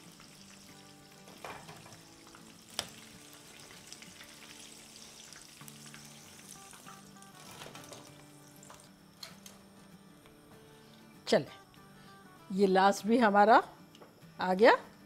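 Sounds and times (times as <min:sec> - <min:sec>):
deep-frying sizzle in oil: 0:00.0 - 0:08.9.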